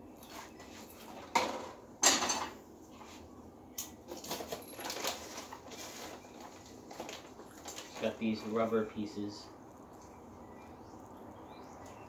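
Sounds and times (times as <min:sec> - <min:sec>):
rustling and handling noises: 0:00.0 - 0:10.2
loud clatter of parts: 0:00.3 - 0:02.6, 0:03.8 - 0:08.2.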